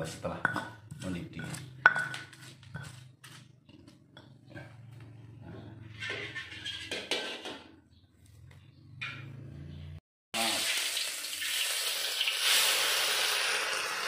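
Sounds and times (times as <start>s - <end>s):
pestle scraping in mortar: 0.0s - 4.9s.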